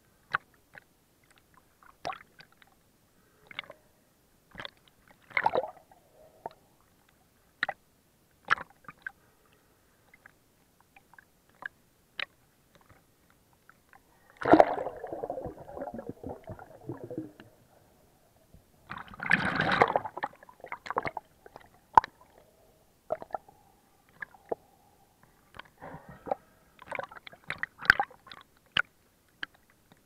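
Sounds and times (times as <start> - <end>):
underwater bubbling and sloshing: 0.4 - 7.8, 8.4 - 30.0
underwater clicks and pops: 18.9 - 22.2.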